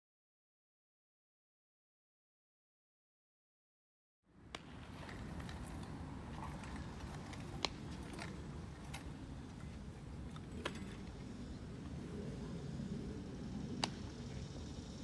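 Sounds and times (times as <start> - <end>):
steady low rumble: 4.3 - 15.0.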